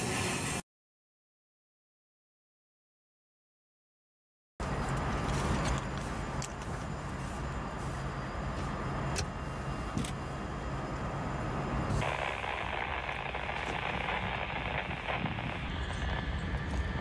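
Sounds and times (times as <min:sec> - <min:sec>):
locomotive engines idling: 0:04.6 - 0:17.0
loud steady hiss: 0:11.9 - 0:17.0.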